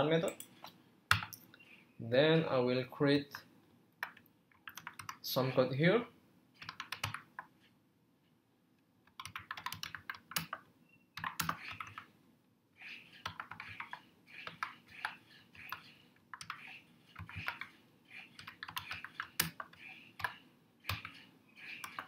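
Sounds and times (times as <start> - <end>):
typing on computer keyboard: 4.0 - 5.2, 6.6 - 7.5, 9.1 - 10.6, 11.2 - 12.1, 13.2 - 22.0.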